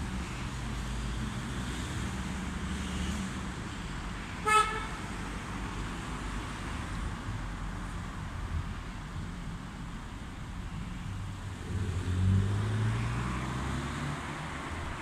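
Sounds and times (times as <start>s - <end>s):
road traffic noise: 0.0s - 15.0s
car horn toot: 4.4s - 5.0s.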